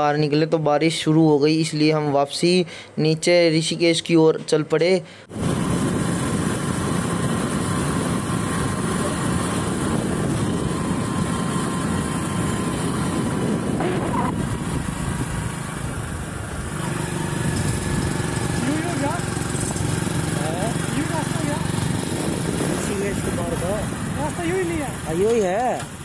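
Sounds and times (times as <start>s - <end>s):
wind rushing over microphone: 5.3s - 25.1s
vehicle engine drone: 5.3s - 26.0s.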